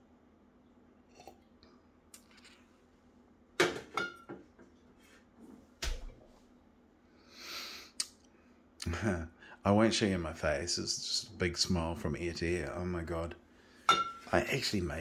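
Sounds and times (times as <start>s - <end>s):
glass clinking on steel: 13.9s - 14.3s.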